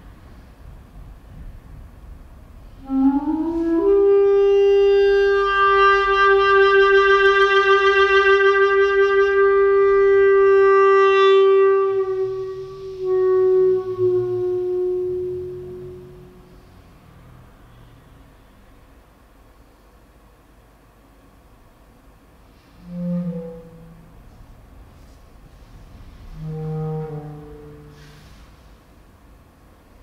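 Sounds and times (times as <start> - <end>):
clarinet playing: 2.8 - 16.7, 22.7 - 24.4, 26.2 - 28.3.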